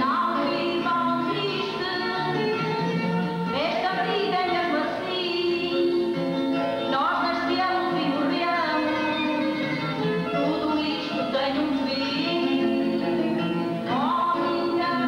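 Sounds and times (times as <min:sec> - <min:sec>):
woman singing: 0:00.0 - 0:02.8, 0:03.5 - 0:06.2, 0:06.9 - 0:15.0
instrumental accompaniment: 0:00.0 - 0:15.0.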